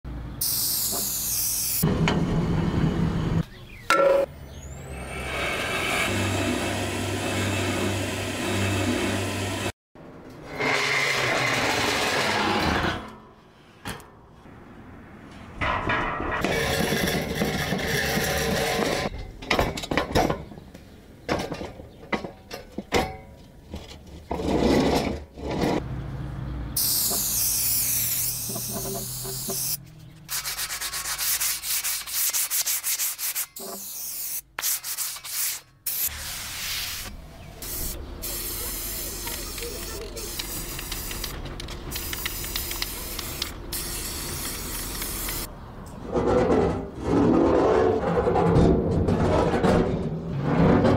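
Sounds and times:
rubbing and sanding noises: 0:26.8 - 0:45.5.

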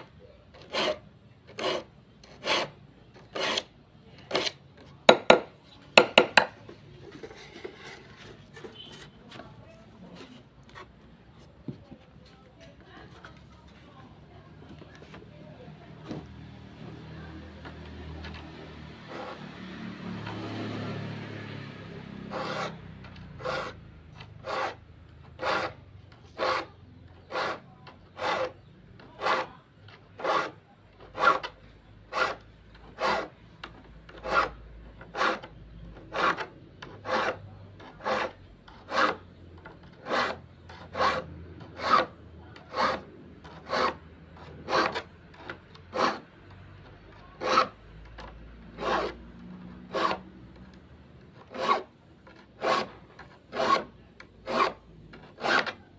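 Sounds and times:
steel file rasping on saw teeth: 0:00.5 - 0:04.6, 0:22.0 - 0:33.4, 0:34.1 - 0:50.3, 0:51.3 - 0:55.9.

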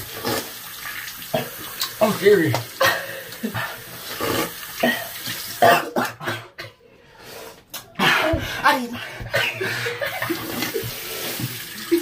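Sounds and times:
men coughing: 0:02.8 - 0:03.7, 0:04.8 - 0:06.8, 0:09.2 - 0:10.5.

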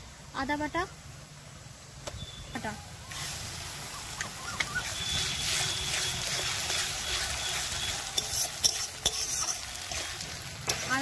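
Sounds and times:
food sizzling in hot oil: 0:02.8 - 0:11.0
metal spatula scraping a pan: 0:04.8 - 0:11.0.

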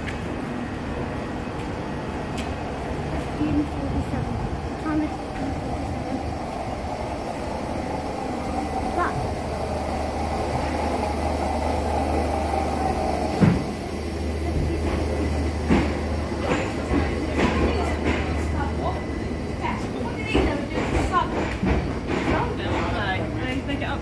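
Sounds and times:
electric train humming: 0:00.0 - 0:24.0
sharp thump: 0:13.4 - 0:13.7.

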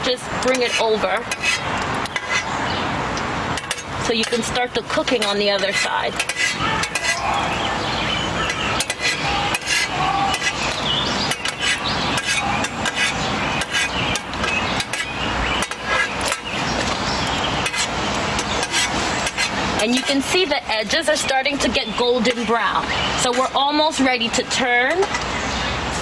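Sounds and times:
metal ladle scraping pan: 0:00.1 - 0:02.6, 0:03.5 - 0:21.7.

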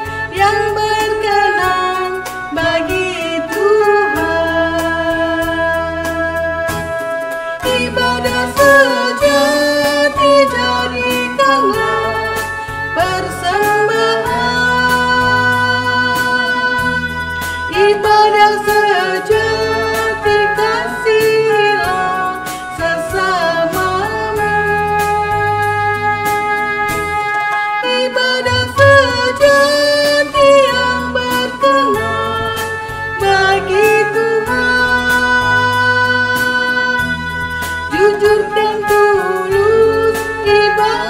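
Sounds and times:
instrumental accompaniment: 0:00.0 - 0:41.0
hymn singing: 0:07.5 - 0:24.9, 0:27.8 - 0:41.0.

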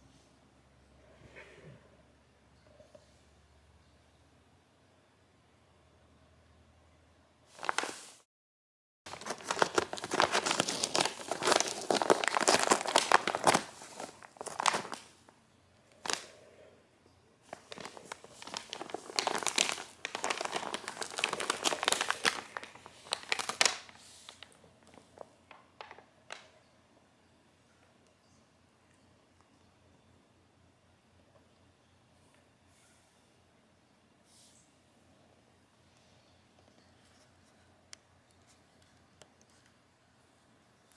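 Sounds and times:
paper bag crinkling: 0:07.5 - 0:08.2, 0:09.1 - 0:15.3, 0:15.9 - 0:16.3, 0:17.4 - 0:26.4.

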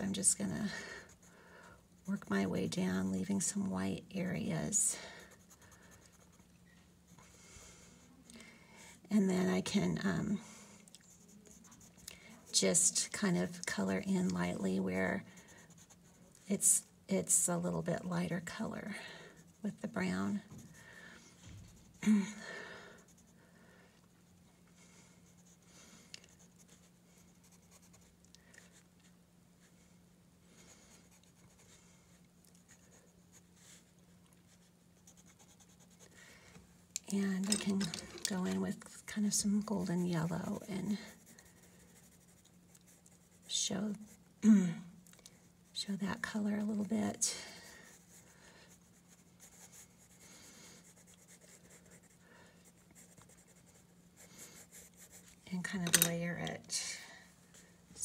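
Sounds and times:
faint low hum: 0:00.0 - 0:58.0
pencil scratching on paper: 0:02.0 - 0:06.5, 0:11.0 - 0:20.8, 0:26.3 - 0:28.8, 0:30.6 - 0:31.8, 0:32.6 - 0:36.2, 0:37.1 - 0:44.3, 0:45.4 - 0:56.7.

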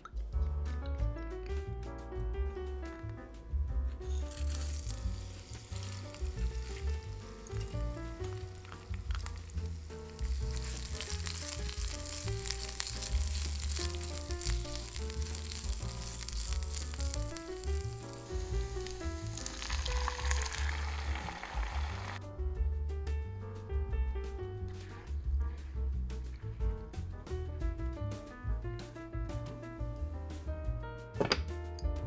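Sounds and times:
background music: 0:00.0 - 0:32.0
rice sizzling in oil: 0:04.1 - 0:22.2.

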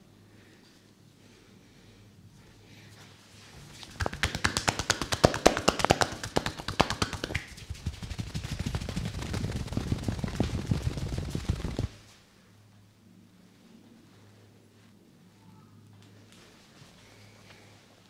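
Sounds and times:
hands slapping in tapping massage: 0:03.8 - 0:11.9.

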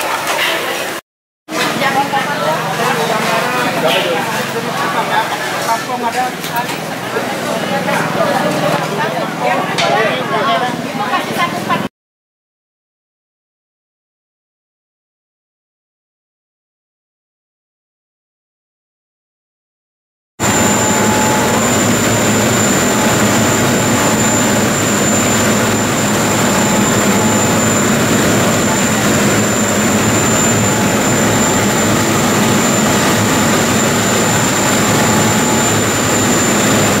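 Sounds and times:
ferry engines droning: 0:20.4 - 0:37.0
thin high whine: 0:20.4 - 0:37.0.

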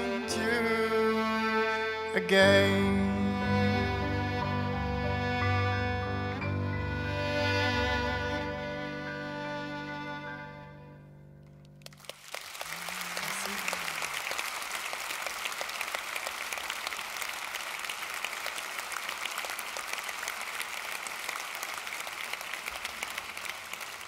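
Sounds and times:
audience applauding: 0:11.8 - 0:24.0.

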